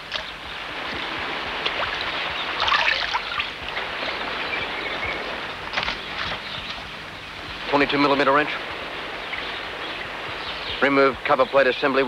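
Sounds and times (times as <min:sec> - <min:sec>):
surf washing over rocks: 0:00.0 - 0:12.0.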